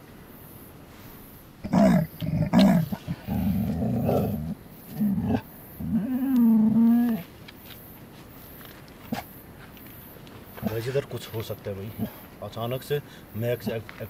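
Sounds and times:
dog growling: 0:01.6 - 0:07.2.

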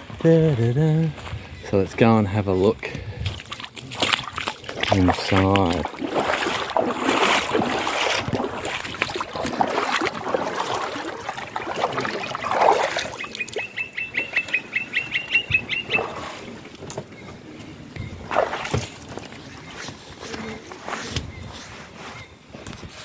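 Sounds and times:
feet splashing through water: 0:03.1 - 0:16.9, 0:18.1 - 0:21.1
bird chirping rapidly: 0:12.1 - 0:16.4.

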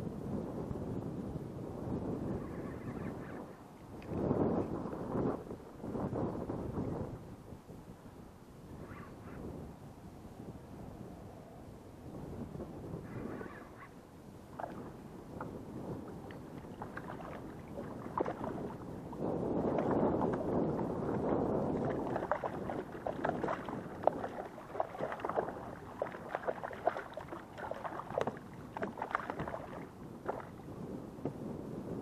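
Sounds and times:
water splashing against kayak: 0:14.5 - 0:31.4
fish thrashing at water surface: 0:16.6 - 0:18.8, 0:21.8 - 0:30.6.

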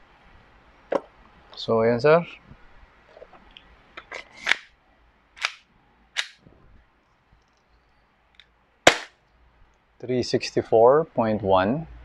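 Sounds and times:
airsoft pistol shots: 0:06.2 - 0:06.4, 0:08.9 - 0:09.2.

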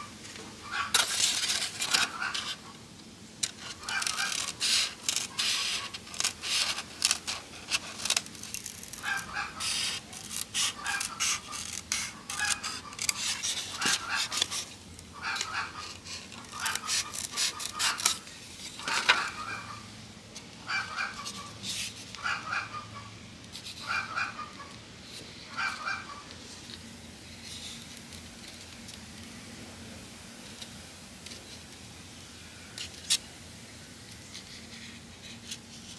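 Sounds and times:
scissors cutting plastic box: 0:16.4 - 0:18.2.

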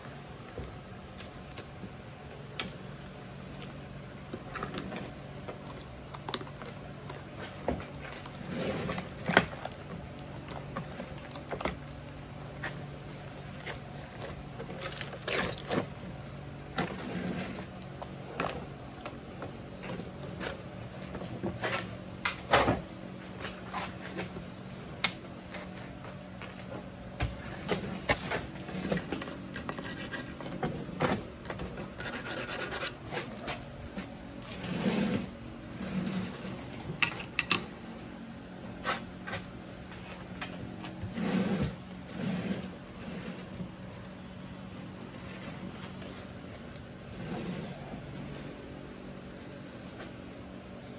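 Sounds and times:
low steady hum: 0:00.0 - 0:50.9
rubber scraping rough casting: 0:07.3 - 0:09.8, 0:40.8 - 0:43.6.

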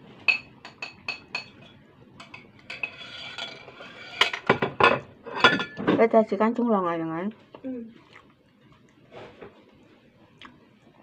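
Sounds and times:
sucking and smacking while eating: 0:07.9 - 0:11.0.

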